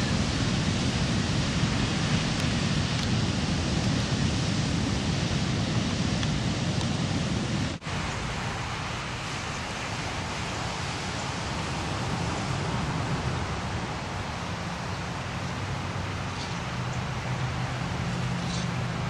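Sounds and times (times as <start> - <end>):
ocean surf breaking: 0.0 - 19.0.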